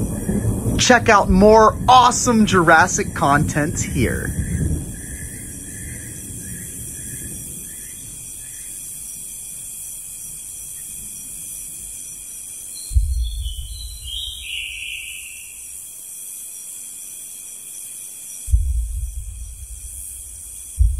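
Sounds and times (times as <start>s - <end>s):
low boom: 0.0s - 5.2s, 12.9s - 14.4s, 18.5s - 20.9s
steady high hiss with faint tones: 0.0s - 20.9s.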